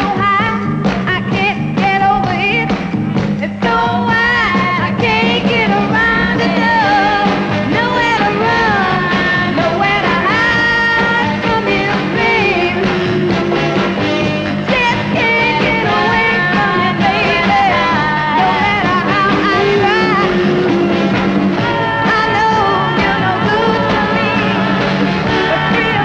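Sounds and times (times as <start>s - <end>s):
pop-soul band playing: 0.0s - 26.0s
person singing: 3.4s - 21.0s, 21.6s - 26.0s.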